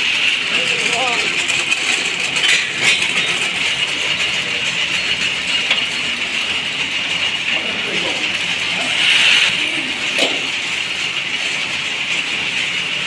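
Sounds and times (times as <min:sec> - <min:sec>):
loud machinery din: 0:07.2 - 0:11.4.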